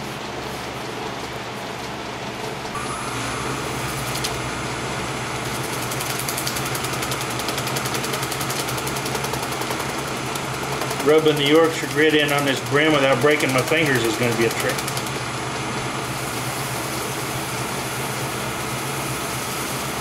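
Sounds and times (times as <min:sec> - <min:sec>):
shop fans: 0:00.0 - 0:20.0
lathe motor whine: 0:02.7 - 0:20.0
fine rapid ticking: 0:05.7 - 0:15.2.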